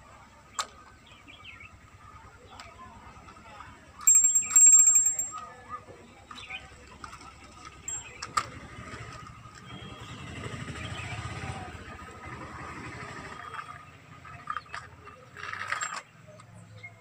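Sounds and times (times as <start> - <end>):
plastic toys clicking: 0.6 - 0.9, 4.0 - 5.6, 6.3 - 9.7, 13.5 - 16.6
vehicle engine passing by: 8.5 - 15.3.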